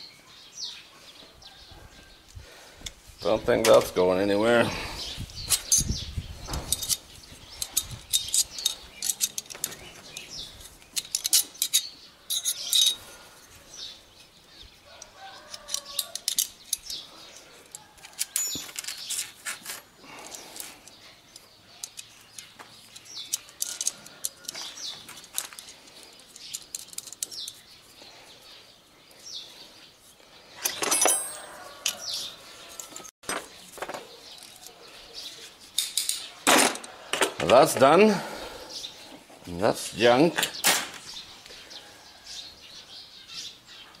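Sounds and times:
birds chirping: 0:00.0 - 0:44.0
pliers clicking on metal: 0:07.6 - 0:10.3, 0:10.9 - 0:13.0, 0:15.0 - 0:17.0, 0:21.3 - 0:25.7.

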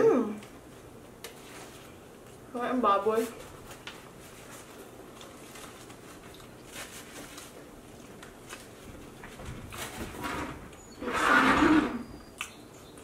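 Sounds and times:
chewing and crunching food: 0:01.2 - 0:02.5, 0:03.6 - 0:10.0, 0:12.2 - 0:13.0.

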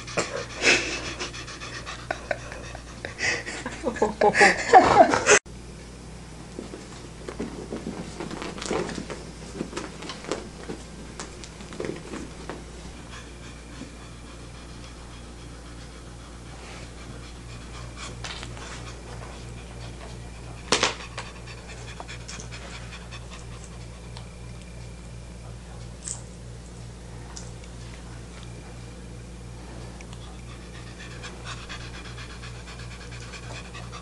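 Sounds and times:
cat panting: 0:00.0 - 0:03.6, 0:30.2 - 0:34.0.

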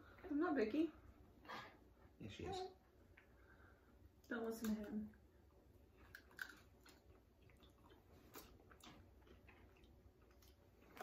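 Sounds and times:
chewing cookies: 0:04.5 - 0:11.0.

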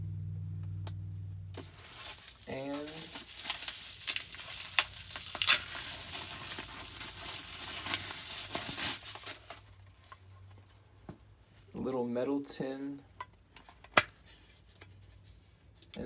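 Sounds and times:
bubble wrap crinkling: 0:01.6 - 0:10.6.

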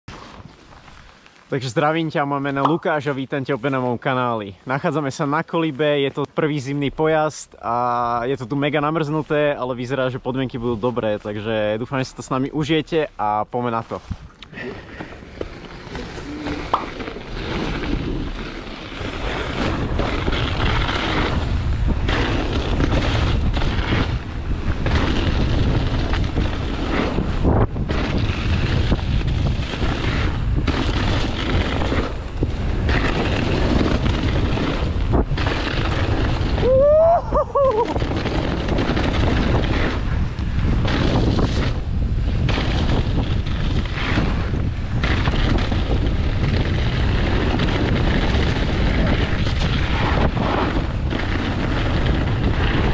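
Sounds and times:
bike tyres rumbling on dirt trail: 0:00.1 - 0:52.9
wind buffeting microphone: 0:13.9 - 0:52.9.

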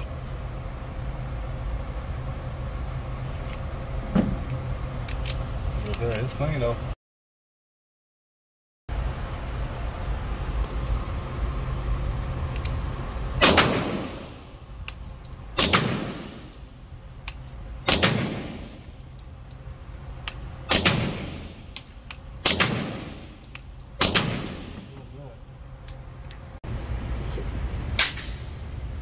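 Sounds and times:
suppressed gunshots echoing: 0:13.4 - 0:14.3, 0:15.6 - 0:16.5, 0:17.8 - 0:18.8, 0:20.7 - 0:21.5, 0:22.4 - 0:23.3, 0:24.0 - 0:24.9.

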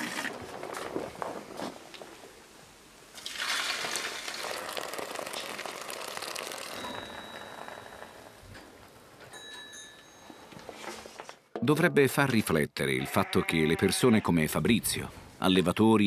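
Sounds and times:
milk pouring and splashing: 0:00.0 - 0:01.4, 0:03.2 - 0:08.3.

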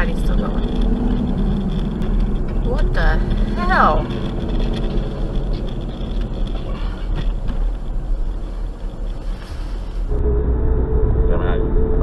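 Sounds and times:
car road and engine rumble: 0:00.0 - 0:12.0.

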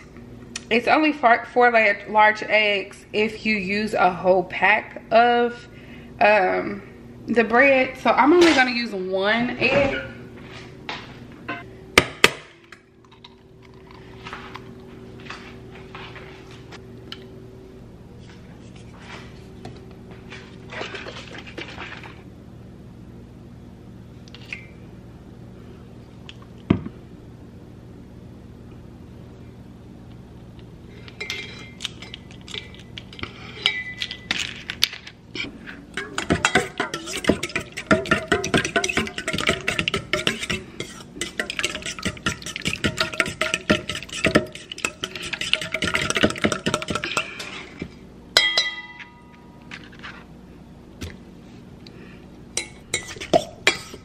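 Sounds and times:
steady low hum: 0:00.0 - 0:54.0
fork beating batter in glass bowl: 0:36.0 - 0:47.6
sharp glass clink: 0:48.4 - 0:49.3.

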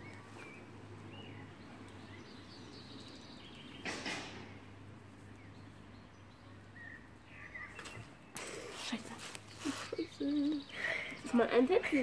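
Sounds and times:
faint bird chirps: 0:05.3 - 0:11.4.

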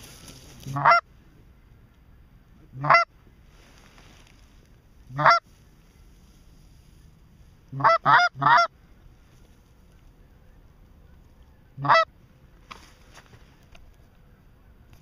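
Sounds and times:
goose honking: 0:00.6 - 0:01.1, 0:02.7 - 0:03.1, 0:05.1 - 0:05.5, 0:07.7 - 0:08.7, 0:11.6 - 0:12.1.

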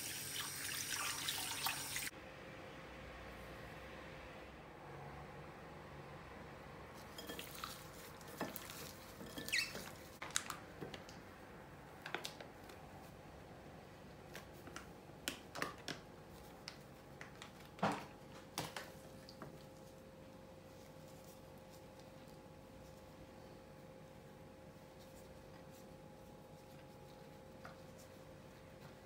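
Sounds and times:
metal spoon scraping glass bowl: 0:09.2 - 0:09.9
faint steady hum: 0:16.1 - 0:29.0.

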